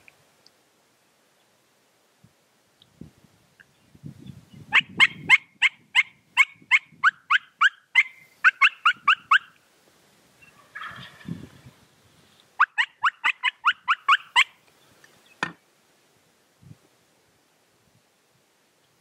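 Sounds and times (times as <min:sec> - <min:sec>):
wild turkeys yelping: 0:04.7 - 0:09.6, 0:10.4 - 0:11.6, 0:12.6 - 0:15.5.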